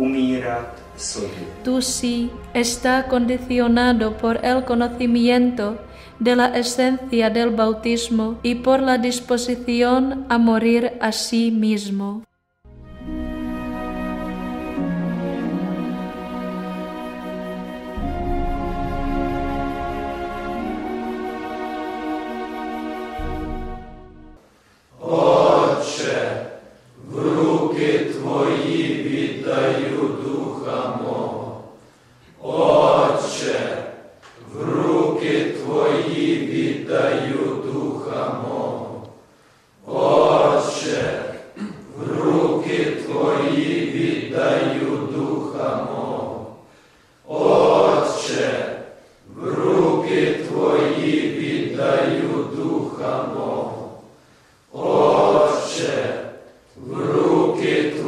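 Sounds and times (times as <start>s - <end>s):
men chanting a prayer together: 25.0s - 31.7s, 32.4s - 39.1s, 39.8s - 46.6s, 47.3s - 54.1s, 54.8s - 58.0s.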